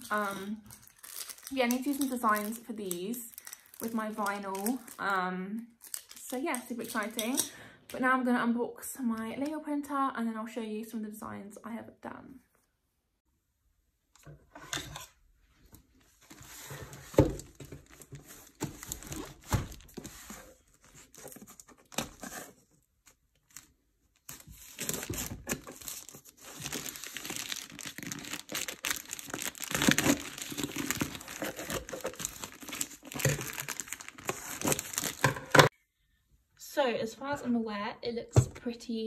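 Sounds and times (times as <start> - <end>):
plastic mailer bag crinkling: 0.0 - 5.1, 5.8 - 7.2, 23.4 - 35.7.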